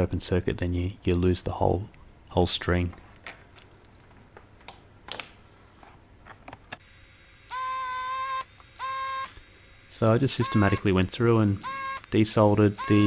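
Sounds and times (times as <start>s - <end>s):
desoldering pump buzzing: 6.8s - 13.0s.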